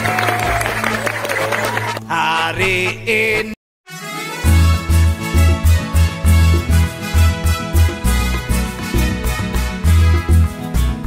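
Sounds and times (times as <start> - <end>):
instrumental chords: 3.9 - 11.0.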